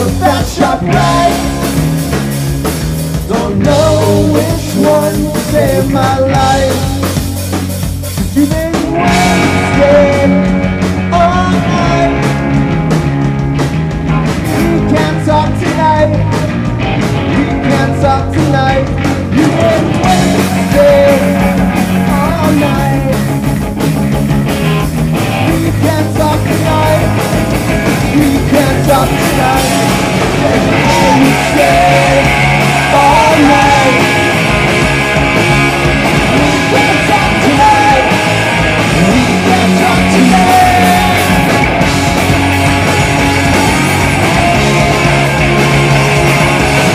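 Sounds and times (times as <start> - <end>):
person singing: 0.0 - 2.2, 3.2 - 12.5, 14.6 - 16.5, 17.3 - 23.3, 25.4 - 27.2, 28.0 - 34.6, 36.4 - 41.6
bass guitar: 0.0 - 46.9
distorted electric guitars: 0.0 - 46.9
drums: 0.0 - 46.9.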